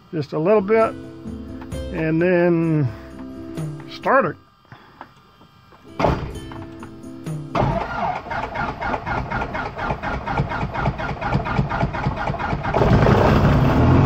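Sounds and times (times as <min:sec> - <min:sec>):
aircraft engine cranking and starting: 0:07.5 - 0:14.0.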